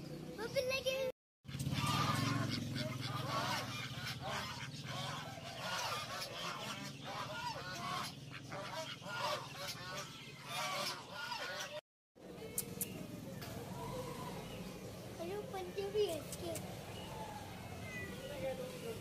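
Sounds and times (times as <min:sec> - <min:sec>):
ducks quacking: 0:01.5 - 0:11.8.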